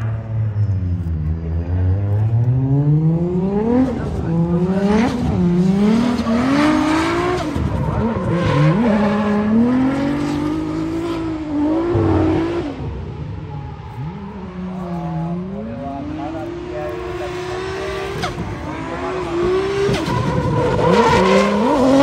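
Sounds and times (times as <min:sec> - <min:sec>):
car engine revving: 0:00.0 - 0:22.0.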